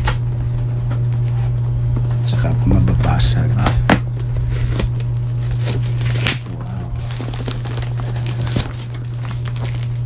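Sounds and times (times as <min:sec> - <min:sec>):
low hum: 0:00.0 - 0:10.0
plastic sack crinkling: 0:04.1 - 0:10.0.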